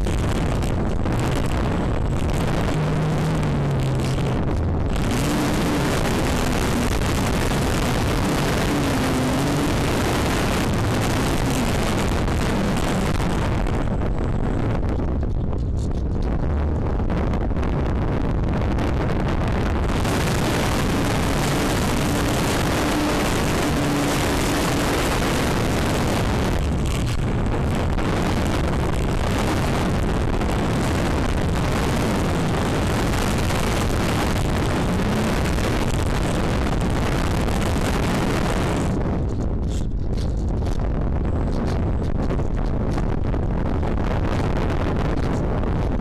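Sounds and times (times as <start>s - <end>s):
wind rushing over microphone: 0.0s - 46.0s
electric motor and propeller: 20.0s - 43.1s.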